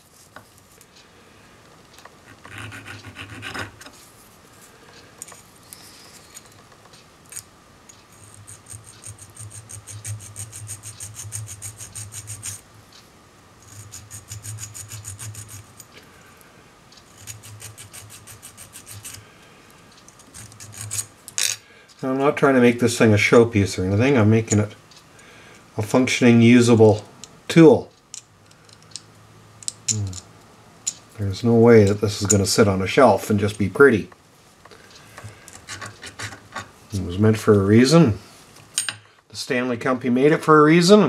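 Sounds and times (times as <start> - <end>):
needle file rasping on metal: 2.4 - 3.8, 8.1 - 12.6, 13.6 - 15.8, 17.1 - 19.2, 20.3 - 21.1.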